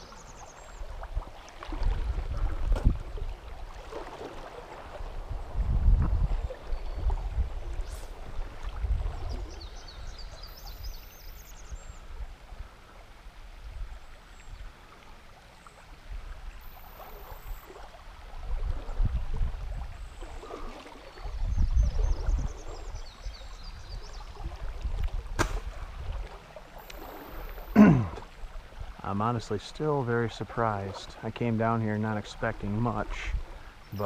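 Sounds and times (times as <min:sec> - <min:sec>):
songbird singing: 0:00.0 - 0:01.1, 0:05.4 - 0:08.2, 0:09.0 - 0:12.3, 0:20.0 - 0:24.8, 0:33.7 - 0:34.0
river current flowing: 0:00.0 - 0:34.0.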